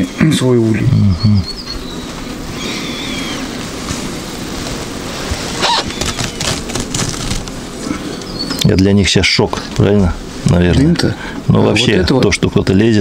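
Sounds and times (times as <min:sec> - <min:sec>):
bird chirping: 0:00.7 - 0:09.1
bees buzzing: 0:00.8 - 0:12.2
cloth cover rustling: 0:03.5 - 0:07.6.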